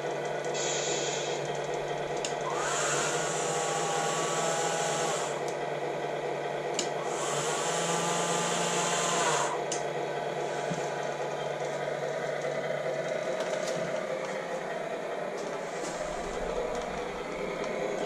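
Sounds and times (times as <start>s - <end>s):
small electric motor whirring: 2.4s - 5.5s, 7.0s - 9.7s
steady low hum: 9.4s - 18.0s.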